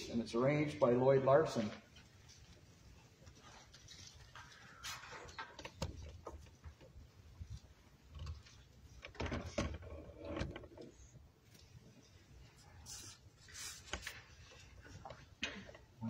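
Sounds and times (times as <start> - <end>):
rustling: 1.6 - 9.2.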